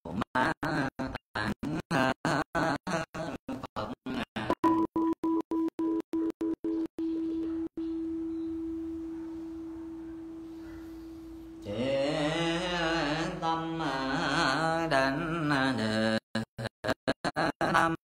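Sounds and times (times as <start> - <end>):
bowl bell ringing: 7.8 - 11.4
voices chanting: 9.6 - 15.3.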